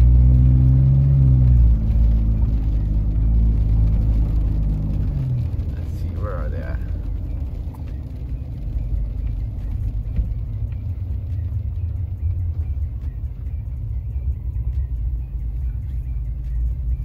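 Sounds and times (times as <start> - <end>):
truck road and engine rumble: 0.0 - 17.0.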